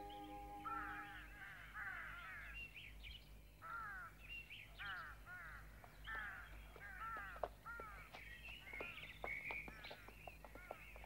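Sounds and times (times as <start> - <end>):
sharp bird chirps: 0.0 - 1.8
faint bird calls: 0.0 - 2.6.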